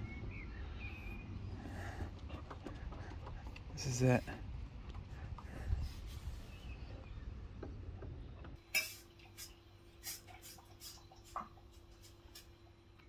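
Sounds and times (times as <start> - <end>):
wind rumble on microphone: 4.4 - 8.6.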